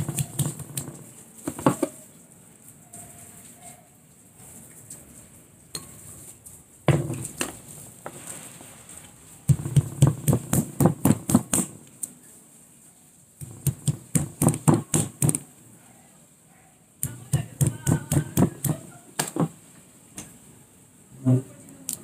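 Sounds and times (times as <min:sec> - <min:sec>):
stone knocking on nuts: 0:00.0 - 0:02.0, 0:09.5 - 0:11.7, 0:13.4 - 0:15.4, 0:17.0 - 0:19.6.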